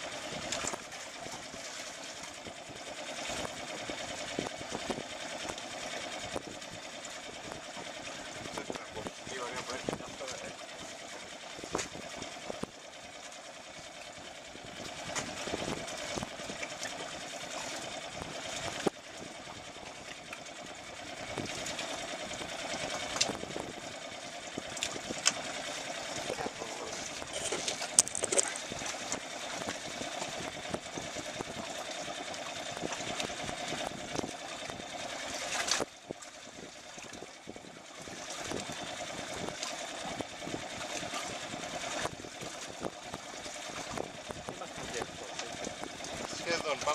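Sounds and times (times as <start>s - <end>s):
fishing reel gears whirring: 2.2s - 46.9s.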